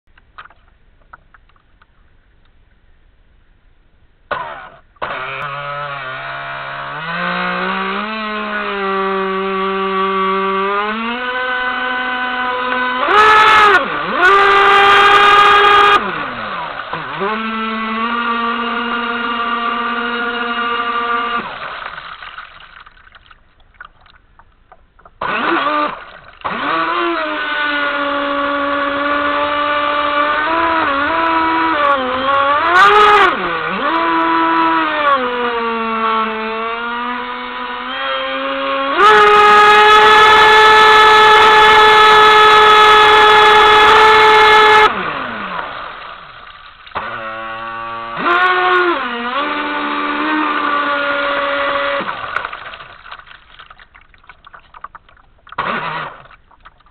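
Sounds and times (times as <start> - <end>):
electric boat motor whine: 4.3 - 21.9, 25.2 - 52.4, 55.6 - 56.3.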